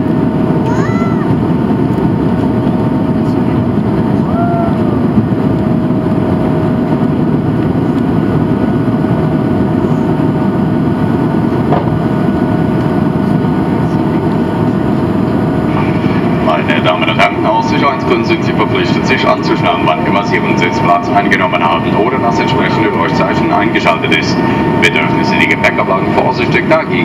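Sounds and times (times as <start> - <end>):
jet engines loud rumble: 0.0 - 27.0
held engine tones: 9.3 - 27.0.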